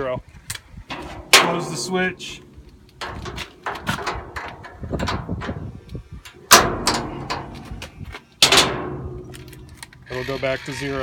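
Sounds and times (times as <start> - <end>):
metallic knocks on steel box: 6.5 - 7.7.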